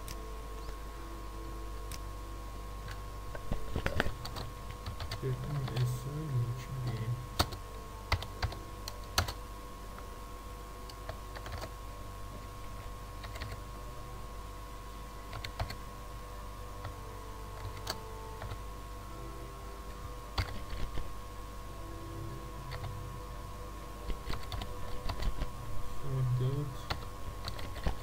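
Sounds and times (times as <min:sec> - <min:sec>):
faint electrical hum: 0:00.0 - 0:28.0
computer keyboard typing: 0:04.0 - 0:05.9, 0:06.8 - 0:09.4, 0:11.0 - 0:11.7, 0:13.2 - 0:13.6, 0:15.3 - 0:15.8, 0:17.6 - 0:18.6, 0:20.4 - 0:20.9, 0:24.2 - 0:25.5, 0:26.9 - 0:28.0.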